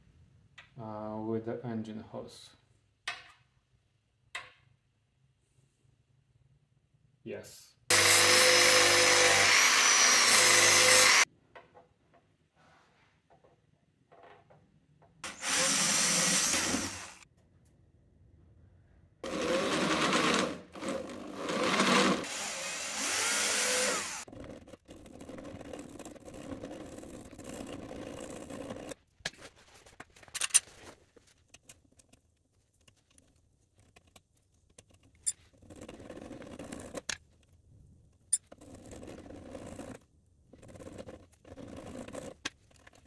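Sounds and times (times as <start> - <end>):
cordless drill boring through metal: 7.9 - 11.3, 15.2 - 17.2, 19.2 - 24.3.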